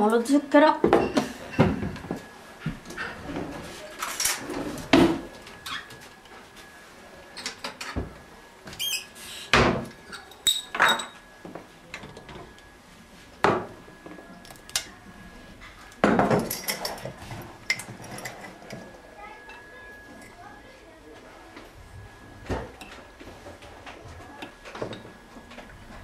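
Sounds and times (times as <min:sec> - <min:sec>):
ringing glass clink: 0:10.1 - 0:11.2.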